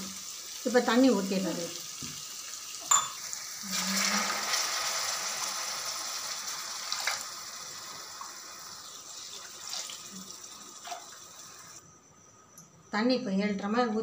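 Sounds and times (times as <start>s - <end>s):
water pouring into frying pan: 0.0s - 11.8s
metal tumbler clinks: 2.9s - 3.2s.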